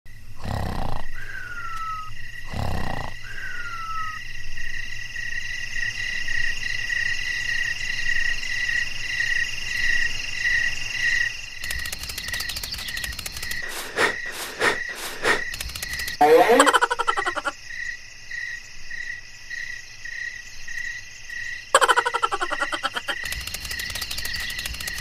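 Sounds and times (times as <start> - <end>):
frogs calling: 0.4 - 4.8, 9.2 - 19.2, 20.2 - 25.0
rapid clicking: 11.6 - 17.5, 21.8 - 25.0.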